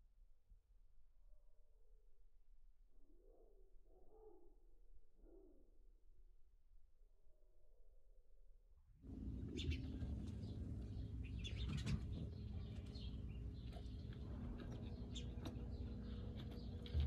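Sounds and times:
sparrows chirping: 9.1 - 17.0
steady low hum: 9.1 - 17.0.

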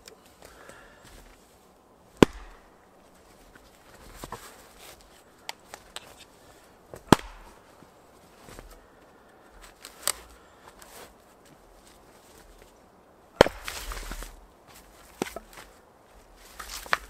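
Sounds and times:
rustling: 0.0 - 17.0
baton striking a log: 2.2 - 2.8, 6.9 - 7.7, 13.4 - 14.4.

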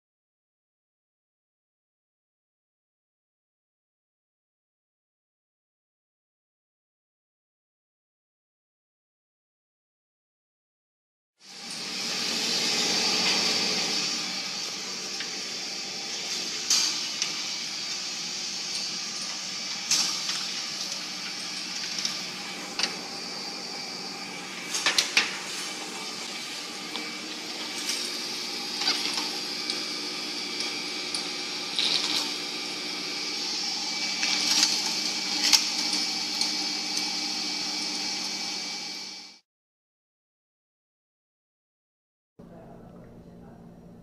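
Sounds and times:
mechanical hum with hiss: 11.4 - 39.4.

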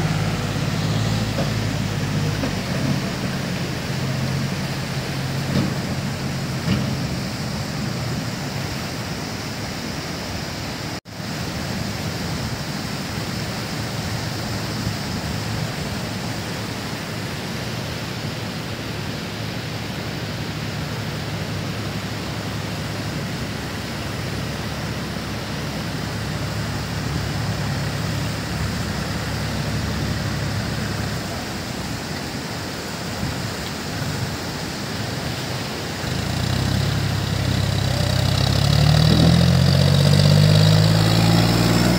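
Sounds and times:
tractor engine revving: 0.0 - 7.8, 36.0 - 41.9
steady rushing noise: 0.0 - 41.9.

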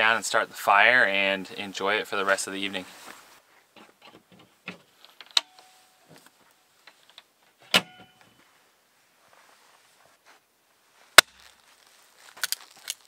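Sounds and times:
firewood clicks and rustles: 11.0 - 13.0.

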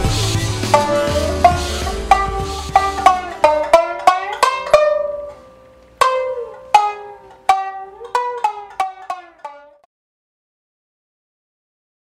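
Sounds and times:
plucked string instrument melody: 0.0 - 9.9.

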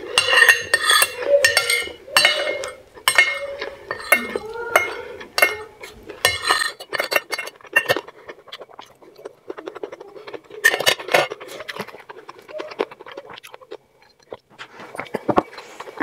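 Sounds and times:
cutlery clicking on ceramic plate: 0.0 - 8.1, 10.6 - 12.0
chewing and mouth sounds: 0.0 - 16.0.

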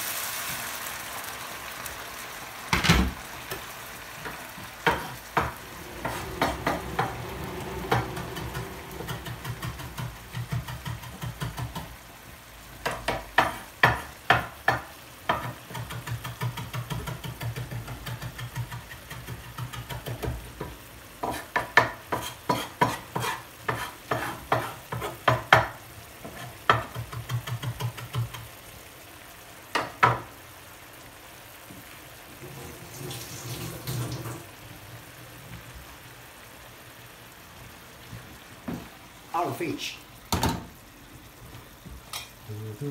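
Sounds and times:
fish simmering in broth: 0.0 - 33.4.

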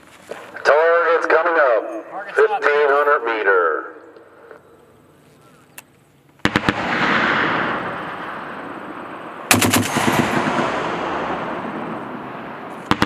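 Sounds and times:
machine gun bursts with echo: 6.4 - 8.7, 9.5 - 12.0, 12.8 - 13.0.

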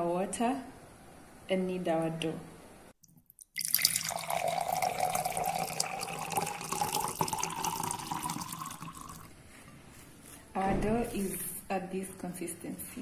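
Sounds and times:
liquid pouring into a glass: 3.0 - 9.3.

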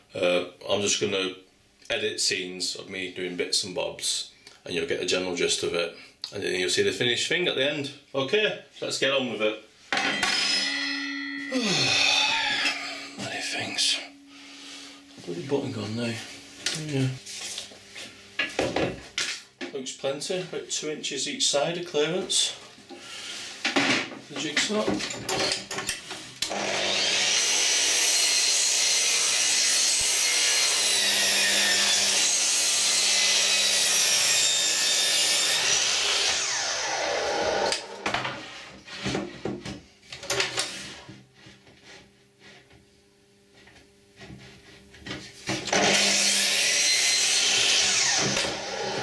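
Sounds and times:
mitre saw cutting wood: 26.5 - 38.0, 45.7 - 49.0.

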